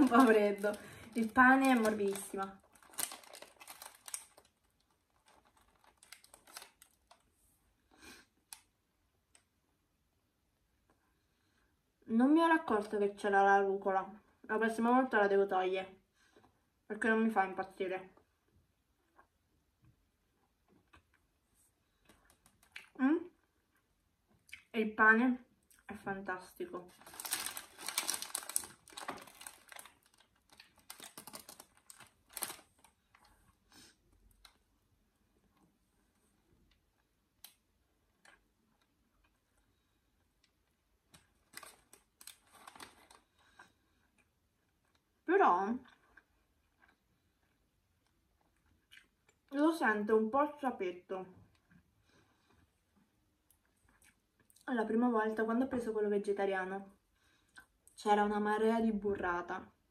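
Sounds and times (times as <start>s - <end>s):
paper wrapper crinkling: 0.0s - 7.3s, 22.1s - 22.8s, 26.8s - 33.4s, 41.1s - 43.5s.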